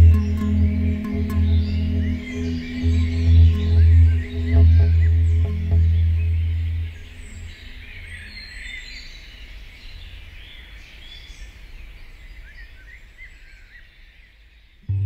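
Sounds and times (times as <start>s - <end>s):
low ambient music drone: 0.0s - 8.7s
songbirds chirping and calling: 0.0s - 14.9s.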